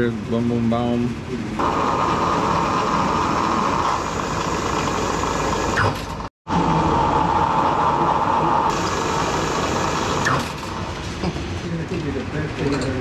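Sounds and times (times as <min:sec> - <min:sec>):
milling machine drilling metal: 0:07.3 - 0:10.8.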